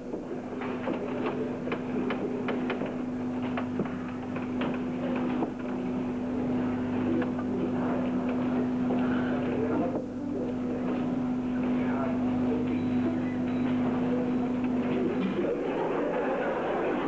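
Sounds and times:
electrical hum: 0.0s - 17.0s
faint clicks and ticks: 0.6s - 5.8s.

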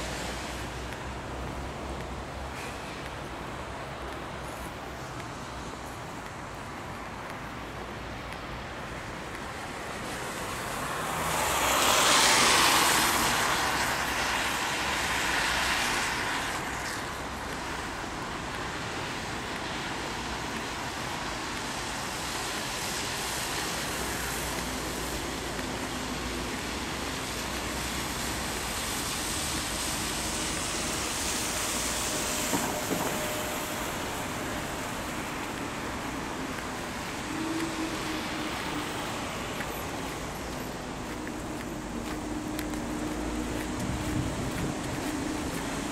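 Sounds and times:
cars passing on wet road: 0.0s - 45.9s.

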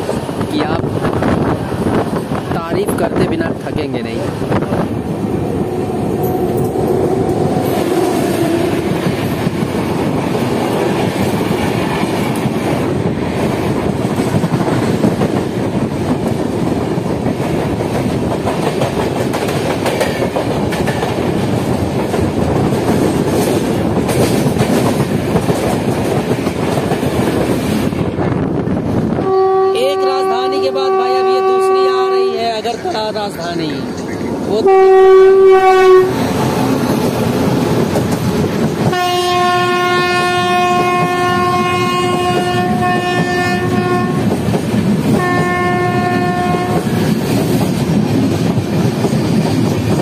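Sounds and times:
rush of air from passing train: 0.0s - 29.5s, 32.5s - 50.0s
train wheels clickety-clack: 6.2s - 29.0s, 36.1s - 50.0s.

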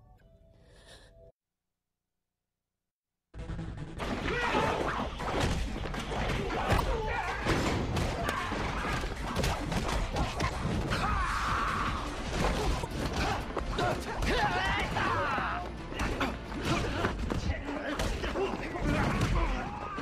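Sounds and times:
music: 0.0s - 1.4s, 3.3s - 20.0s
punch and kick impacts: 4.0s - 15.2s.

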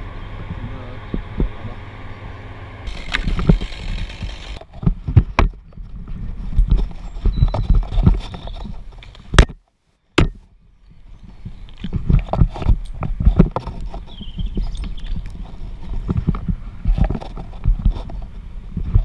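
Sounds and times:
steady hum: 0.0s - 5.5s.

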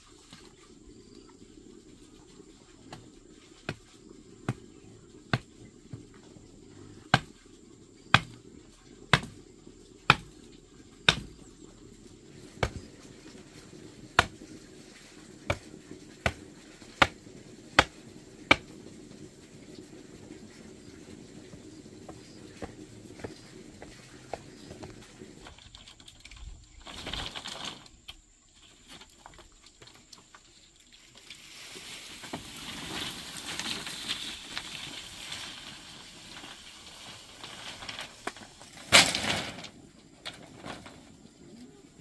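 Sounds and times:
hand tool striking: 8.1s - 8.4s, 10.1s - 10.4s, 11.1s - 11.4s.

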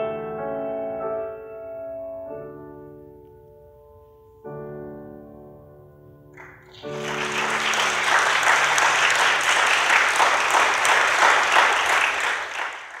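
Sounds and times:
piano chord: 0.0s - 9.8s
audience applause: 6.4s - 13.0s.

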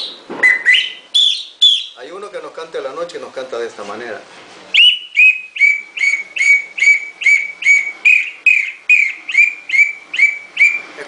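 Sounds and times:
bird-call whistle notes: 0.0s - 2.0s, 4.8s - 11.0s.

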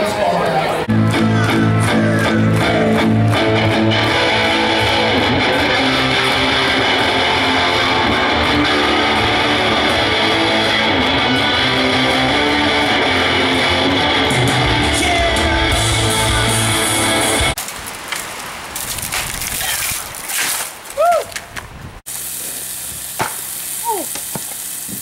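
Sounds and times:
live rock band playing: 0.9s - 17.6s.

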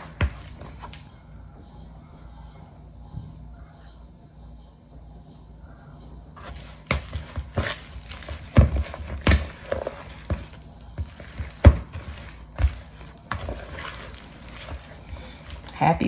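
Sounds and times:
fork scraping a plastic bowl: 11.2s - 15.6s.

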